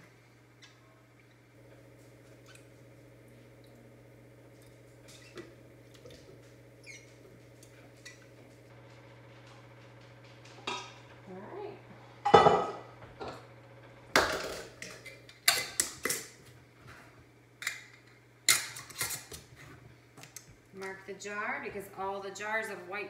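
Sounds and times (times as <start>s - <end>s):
steady low hum: 0.0s - 18.7s
pot knocking into sink: 12.3s - 12.8s
pot and utensils clattering: 12.3s - 12.9s.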